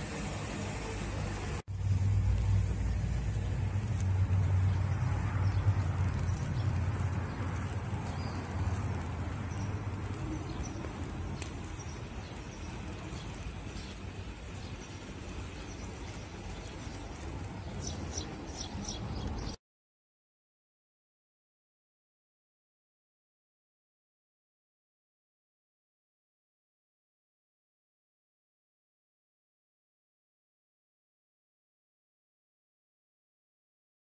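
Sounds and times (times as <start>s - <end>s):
low engine hum: 0.0s - 19.6s
outdoor background noise: 0.0s - 19.6s.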